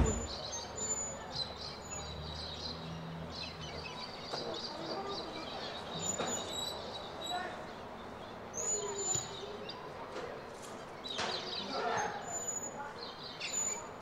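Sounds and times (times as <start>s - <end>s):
birds chirping: 0.0s - 9.9s
faint outdoor background noise: 0.0s - 14.0s.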